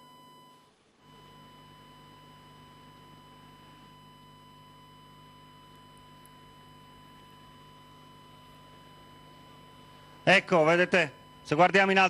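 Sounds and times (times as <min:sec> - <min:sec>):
electrical hum and hiss: 0:00.0 - 0:12.0
thin high tone: 0:05.2 - 0:12.0.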